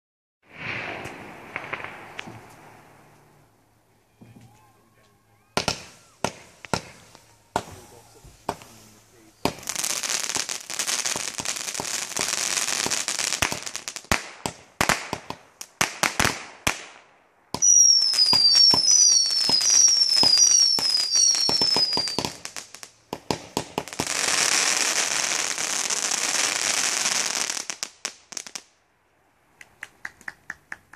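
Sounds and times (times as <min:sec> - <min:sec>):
fireworks crackling and popping: 0:00.4 - 0:28.8
falling firework whistles: 0:00.5 - 0:03.5, 0:04.1 - 0:11.9, 0:17.6 - 0:22.7.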